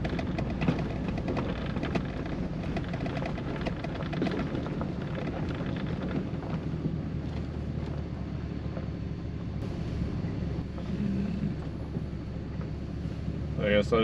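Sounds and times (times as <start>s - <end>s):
clicks and rattles in truck cab: 0.0s - 8.0s
engine and tyre rumble: 0.0s - 14.0s.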